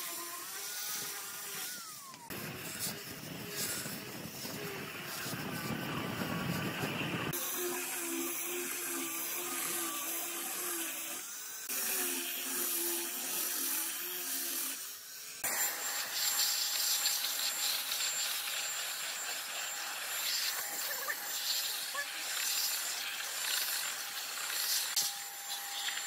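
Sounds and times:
electric air blower whining: 0:00.0 - 0:14.8, 0:15.4 - 0:26.0
angle grinder sanding wood: 0:00.0 - 0:26.0.

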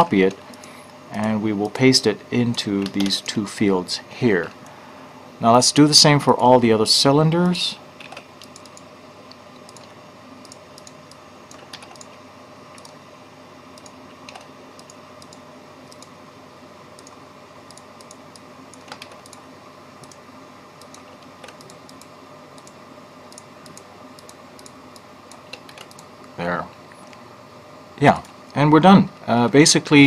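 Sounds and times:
faint steady hum: 0:00.0 - 0:30.0
keyboard and mouse clicks: 0:02.5 - 0:03.3, 0:08.0 - 0:13.0, 0:13.8 - 0:16.1, 0:17.0 - 0:19.4, 0:20.8 - 0:26.1.

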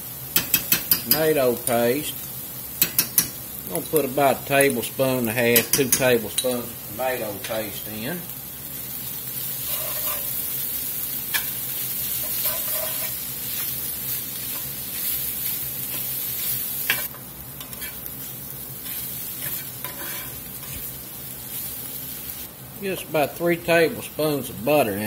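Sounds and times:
food sizzling: 0:00.0 - 0:25.0
spatula scraping skillet: 0:09.2 - 0:23.1.

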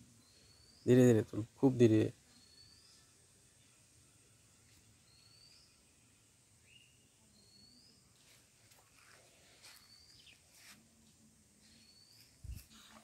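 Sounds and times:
bird chirping faintly: 0:00.0 - 0:03.8, 0:04.6 - 0:05.9, 0:06.6 - 0:08.4, 0:11.5 - 0:13.0.

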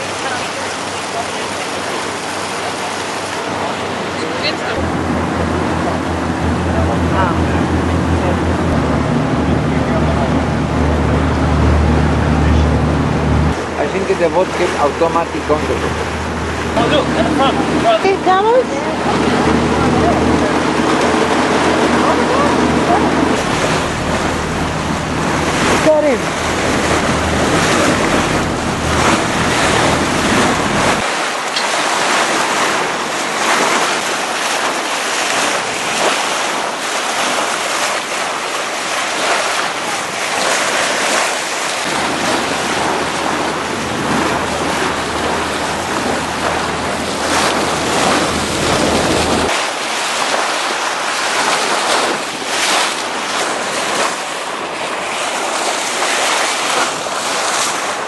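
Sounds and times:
boat bow wave splashing: 0:00.0 - 0:58.0
low rumble: 0:04.8 - 0:31.1
wind buffeting microphone: 0:04.8 - 0:58.0.

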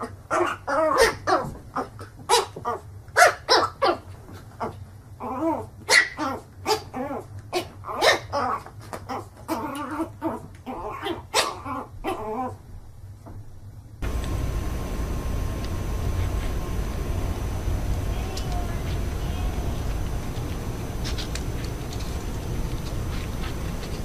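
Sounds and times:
puppy yapping: 0:05.5 - 0:12.5.

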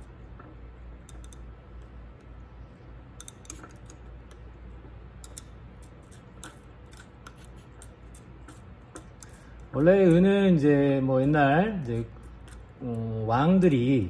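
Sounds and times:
low steady hum: 0:00.0 - 0:14.0
glass rod clicking on beaker: 0:01.0 - 0:01.5.

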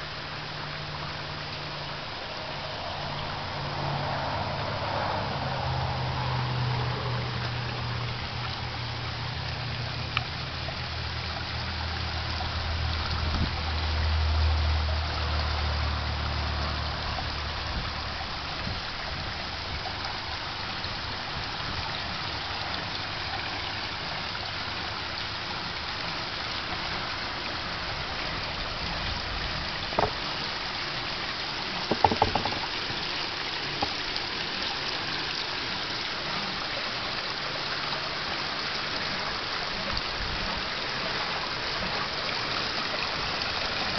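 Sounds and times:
waterfall trickling and splashing: 0:00.0 - 0:43.9
sharp knocks: 0:30.0 - 0:30.2, 0:31.9 - 0:32.8.

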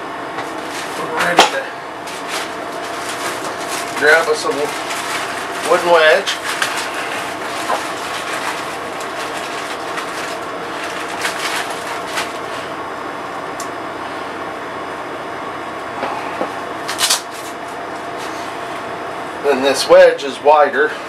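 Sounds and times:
air conditioner running: 0:00.0 - 0:21.0.

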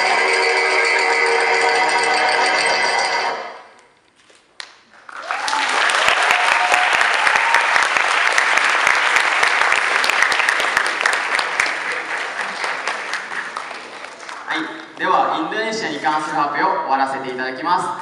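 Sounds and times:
crowd applauding: 0:04.9 - 0:15.0.

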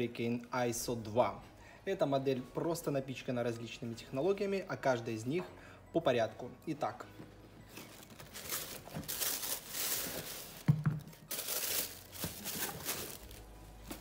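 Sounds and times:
tissue paper rustling: 0:07.7 - 0:14.0.

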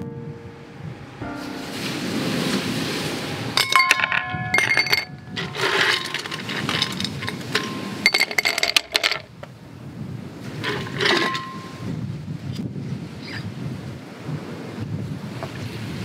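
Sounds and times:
ice cubes clinking into glass: 0:03.6 - 0:09.3.

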